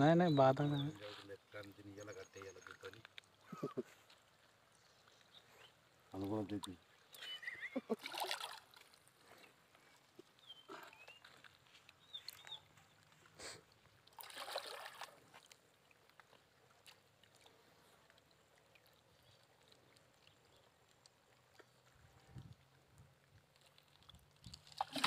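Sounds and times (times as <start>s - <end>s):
fish splashing in water: 6.8s - 9.3s, 10.2s - 25.0s
high bird chirps: 7.2s - 7.8s.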